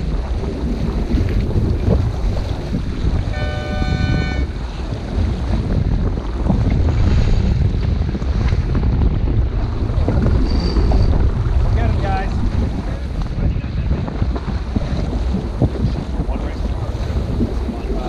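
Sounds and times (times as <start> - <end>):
water rushing along a hull: 0.0 - 18.0
wind buffeting microphone: 0.0 - 18.0
short steady tone: 3.3 - 4.5.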